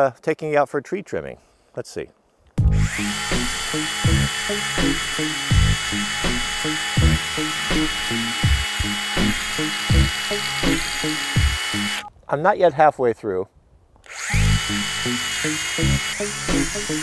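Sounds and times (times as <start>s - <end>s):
mini saw whining: 2.7s - 12.1s, 14.0s - 17.0s.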